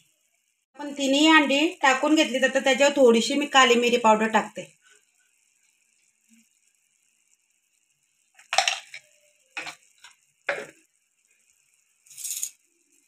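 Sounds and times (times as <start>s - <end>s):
steel spoon clinking: 12.1s - 12.7s.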